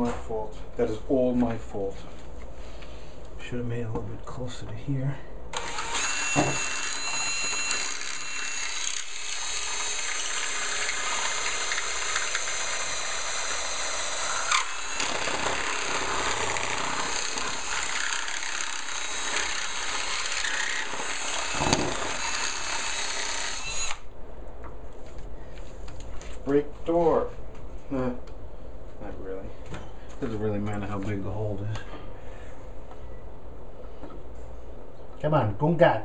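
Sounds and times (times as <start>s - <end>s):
cordless drill boring into metal: 5.5s - 24.0s.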